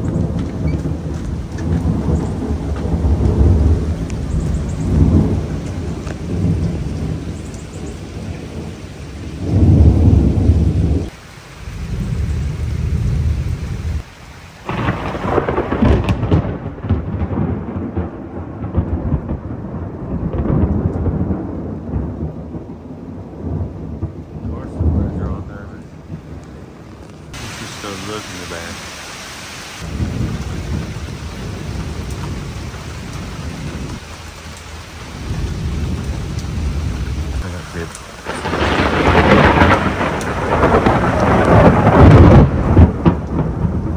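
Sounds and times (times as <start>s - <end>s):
thunder rumbling: 0.0s - 29.1s, 29.8s - 43.9s
heavy rain on pavement: 0.0s - 43.9s.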